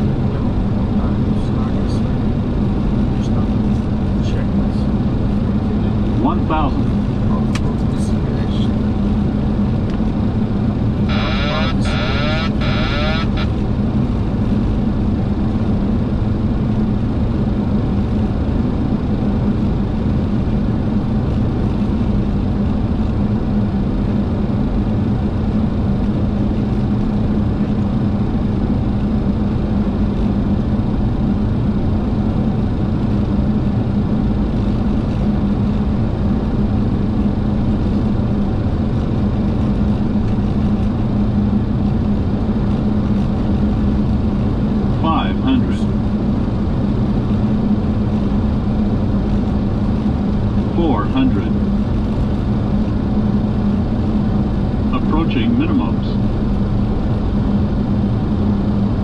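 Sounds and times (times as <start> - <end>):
airflow and engine rush: 0.0 - 59.0
low hum: 9.0 - 15.3, 44.2 - 58.6.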